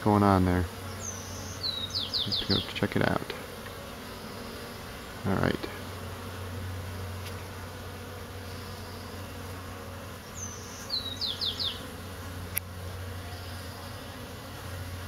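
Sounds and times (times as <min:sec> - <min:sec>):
honeybees buzzing: 0:00.0 - 0:15.0
bird chirps: 0:00.9 - 0:02.7, 0:10.3 - 0:11.9.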